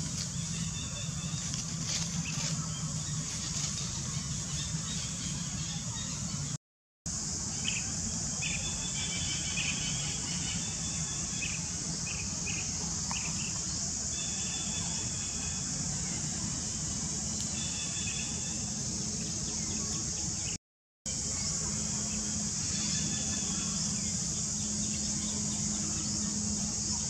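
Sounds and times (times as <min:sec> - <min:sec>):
high-pitched insect drone: 0:21.1 - 0:27.0.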